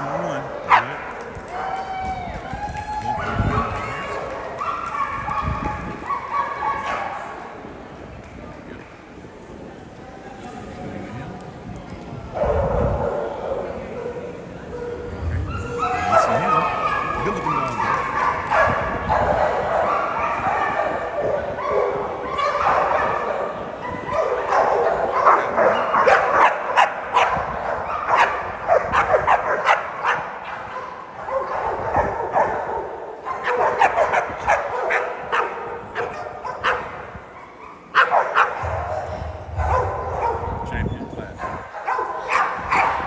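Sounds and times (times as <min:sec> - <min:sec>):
dogs barking and yipping: 0:04.2 - 0:07.3, 0:15.0 - 0:40.6, 0:41.4 - 0:43.0.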